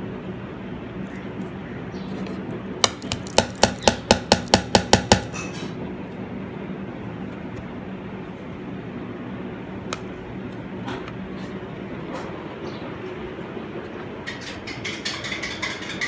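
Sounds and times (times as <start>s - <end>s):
bowl tapping on plates: 14.3s - 16.0s.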